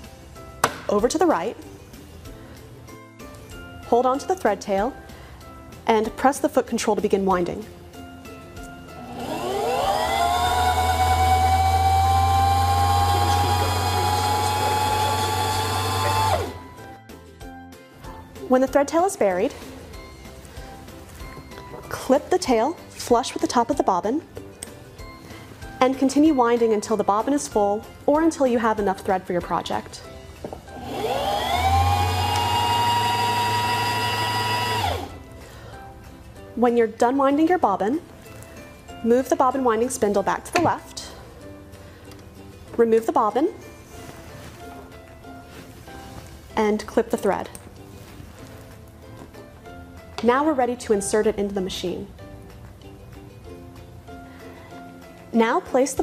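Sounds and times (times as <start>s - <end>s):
sewing machine motor whining: 9.0s - 16.6s, 30.8s - 35.1s.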